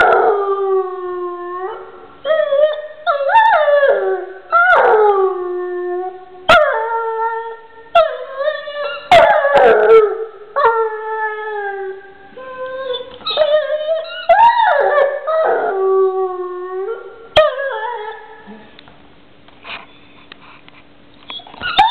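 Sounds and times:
dog howling and whining: 0.0 - 18.5, 21.3 - 21.9.

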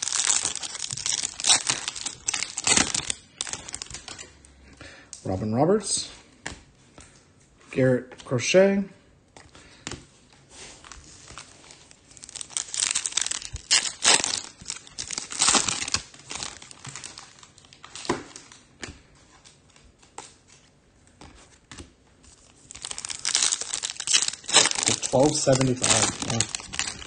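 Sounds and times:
foil wrapper tearing and crinkling: 0.0 - 4.3, 10.8 - 18.6, 22.6 - 27.0.

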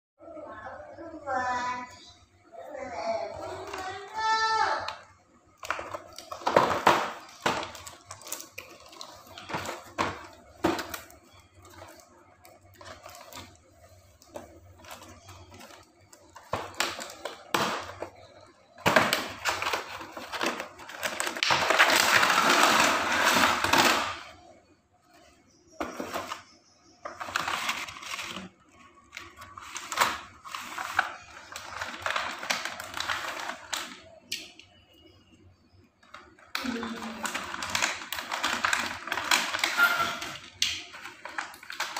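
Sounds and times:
packaging clicks and knocks: 5.5 - 13.6, 14.2 - 24.3, 27.0 - 34.6, 36.0 - 41.9
loud scraping rustle of packaging: 5.6 - 24.3, 25.0 - 34.0, 36.7 - 41.9.

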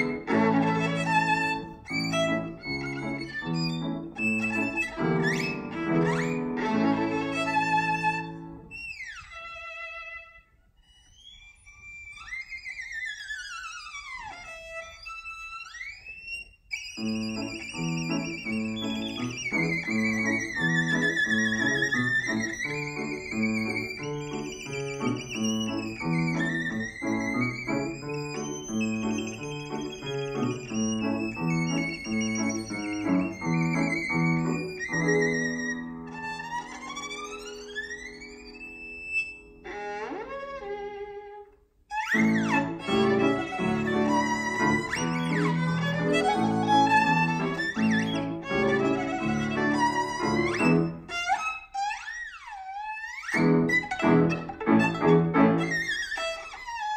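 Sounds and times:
piano rhythmic chords: 0.0 - 8.7, 17.2 - 39.7, 42.1 - 51.2, 53.4 - 56.0
violin long notes with vibrato: 0.0 - 56.9.

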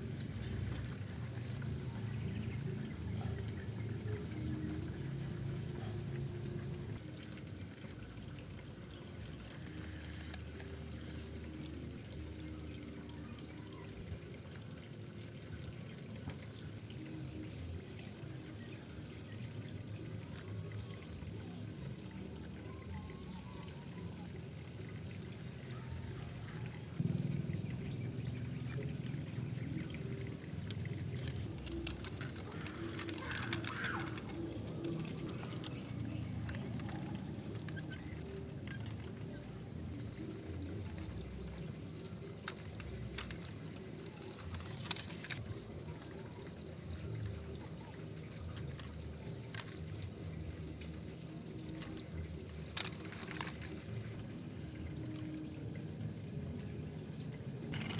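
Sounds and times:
toy wheels grinding through dirt: 28.8 - 54.4, 57.7 - 57.9
small clicks: 29.8 - 39.6.

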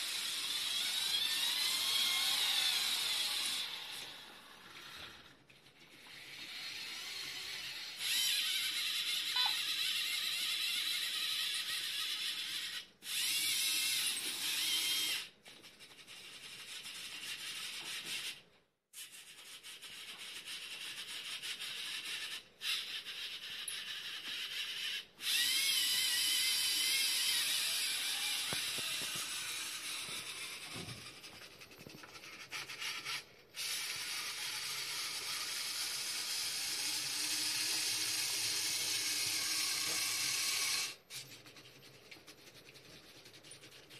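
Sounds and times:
robotic arm motors whirring: 0.0 - 18.4, 19.0 - 43.9.

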